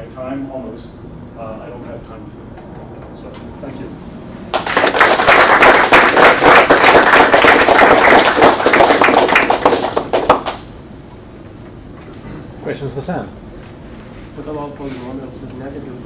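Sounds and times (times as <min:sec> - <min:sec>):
audience applauding: 0:04.5 - 0:10.6.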